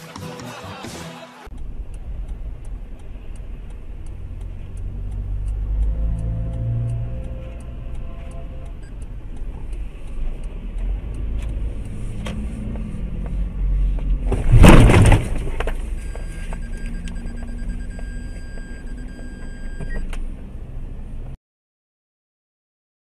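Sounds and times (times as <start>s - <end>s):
car road and engine rumble: 1.4s - 21.4s
loud collision bang: 14.4s - 15.5s.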